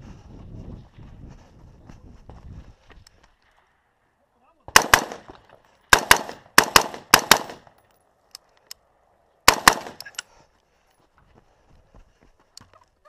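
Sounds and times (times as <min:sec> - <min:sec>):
rifle shots with echo: 0:04.7 - 0:07.7, 0:09.5 - 0:10.2.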